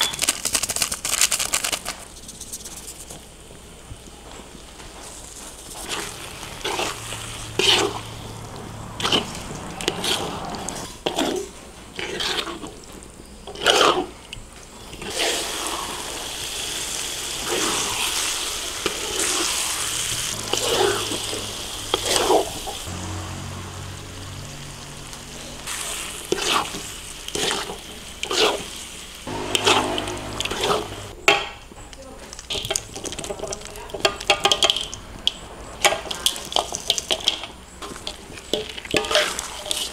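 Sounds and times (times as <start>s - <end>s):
utensils and cookware clattering: 32.3s - 39.9s.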